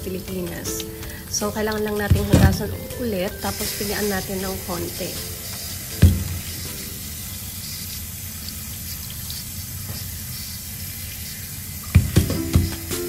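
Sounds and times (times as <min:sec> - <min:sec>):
tap water running into colander: 0:00.0 - 0:13.0
sharp knocks: 0:06.0 - 0:06.4, 0:11.9 - 0:13.0.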